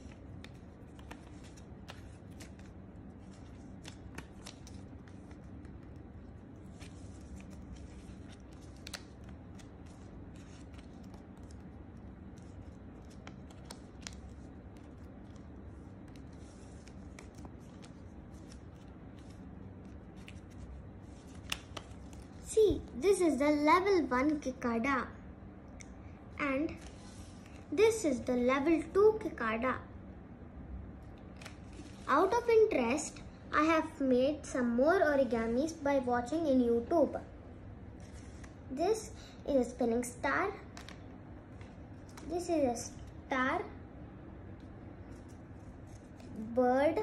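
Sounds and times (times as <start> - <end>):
paper rustling and creasing: 0.0 - 23.0, 26.7 - 27.7, 31.3 - 32.5, 37.9 - 38.7, 45.0 - 47.0
low room hum: 0.0 - 47.0.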